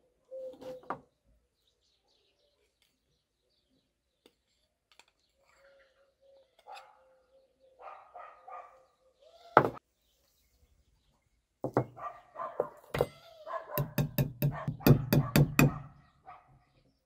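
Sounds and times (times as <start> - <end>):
dog barking: 6.7 - 7.1, 7.8 - 8.9, 11.9 - 12.8, 13.4 - 16.7.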